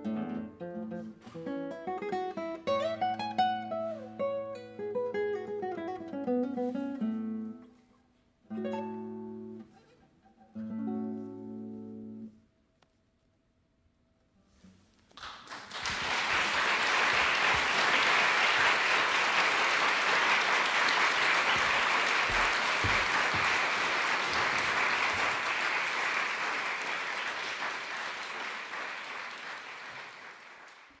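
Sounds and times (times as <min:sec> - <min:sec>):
audience applauding: 0:15.2 - 0:31.0.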